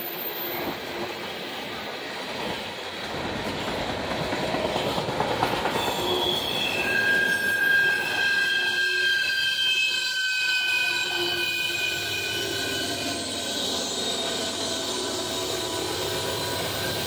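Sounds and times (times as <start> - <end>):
freight train wheels rumbling: 0.0 - 17.0
high-pitched wheel squeal: 5.7 - 17.0.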